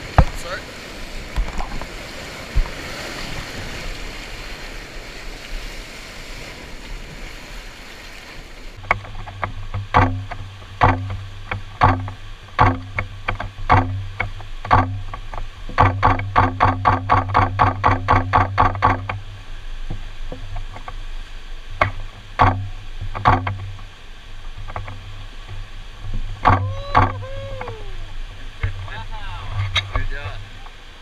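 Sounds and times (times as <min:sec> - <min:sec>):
whitewater rapids rushing: 0:00.0 - 0:14.9, 0:24.8 - 0:31.0.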